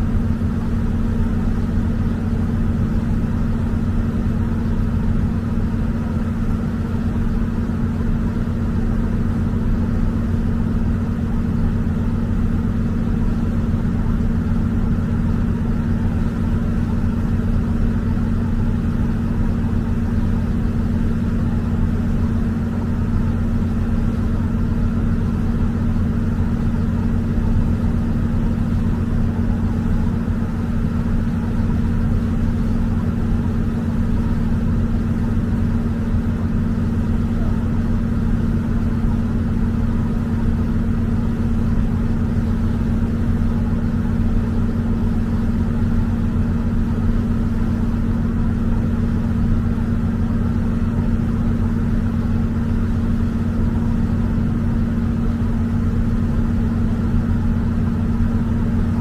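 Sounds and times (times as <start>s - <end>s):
ferry engines humming: 0.0s - 45.6s.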